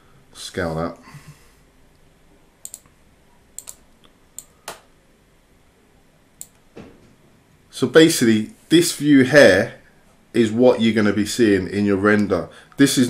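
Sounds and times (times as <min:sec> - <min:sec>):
computer mouse clicks: 0:02.6 - 0:03.0, 0:03.6 - 0:04.9, 0:06.4 - 0:06.7.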